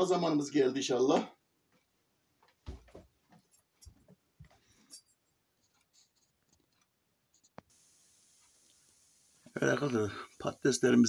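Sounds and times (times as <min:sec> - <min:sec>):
faint steady hiss: 0:03.6 - 0:11.0.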